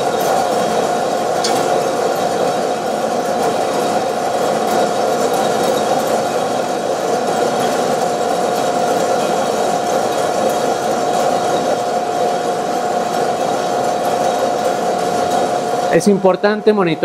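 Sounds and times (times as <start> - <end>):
coffee roaster motor hum: 0.0 - 17.0.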